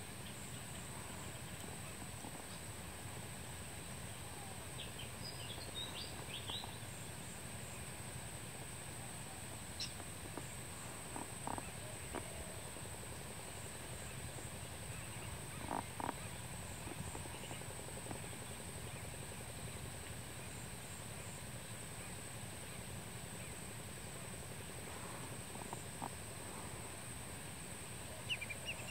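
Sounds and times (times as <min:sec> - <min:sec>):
constant high whine: 0:00.0 - 0:28.9
outdoor hiss: 0:00.0 - 0:28.9
faint bird calls: 0:09.2 - 0:20.6, 0:27.9 - 0:28.9.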